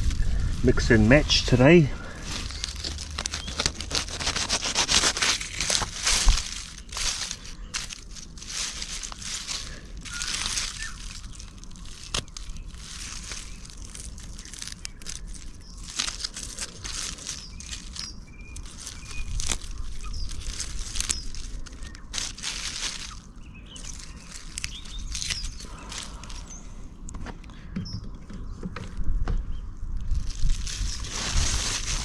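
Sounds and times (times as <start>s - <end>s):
leaves and stems rustling: 0.0s - 27.1s, 30.0s - 32.0s
knife trimming stems: 2.3s - 23.2s.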